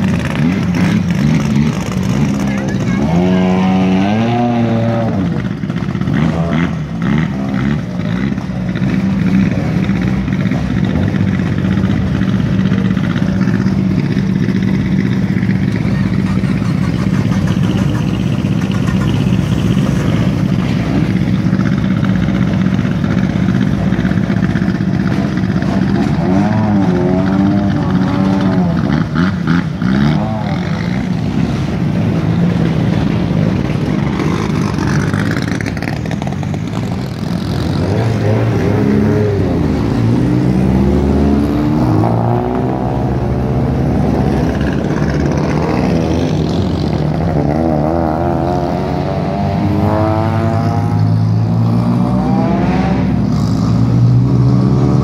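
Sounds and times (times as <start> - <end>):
car engines idling: 0.0 - 54.3.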